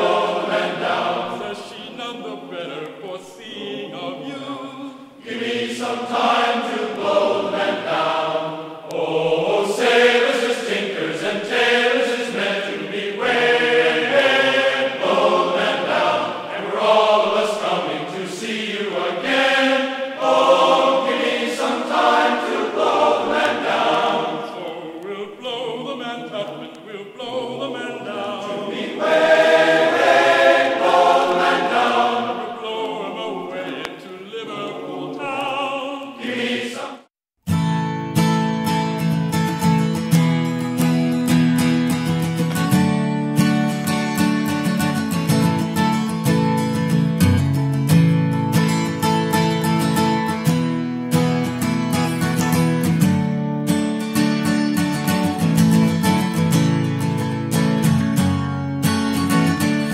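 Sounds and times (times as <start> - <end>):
choir singing: 0.0 - 37.1.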